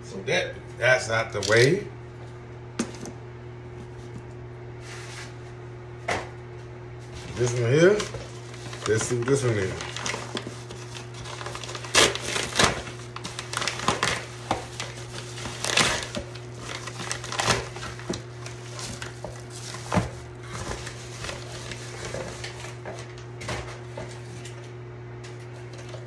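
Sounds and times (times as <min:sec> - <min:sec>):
plastic bag crinkling: 0:07.4 - 0:22.7.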